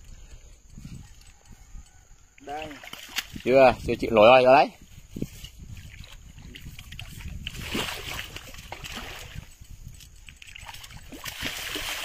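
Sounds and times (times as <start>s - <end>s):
fish thrashing and splashing: 2.6s - 3.5s, 5.7s - 12.0s.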